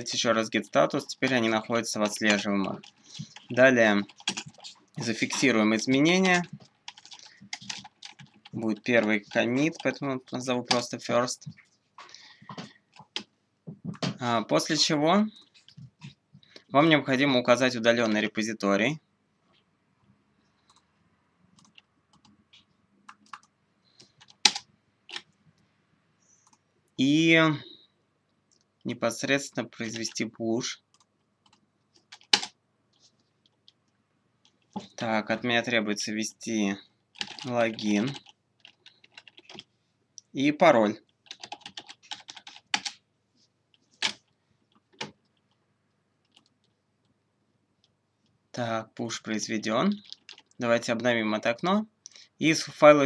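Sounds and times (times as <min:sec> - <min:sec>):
computer keystrokes and clicks: 0:01.2 - 0:11.0, 0:20.6 - 0:20.9, 0:21.5 - 0:25.4, 0:30.9 - 0:32.6, 0:37.1 - 0:39.7, 0:41.0 - 0:43.0, 0:46.2 - 0:46.8, 0:49.9 - 0:50.6.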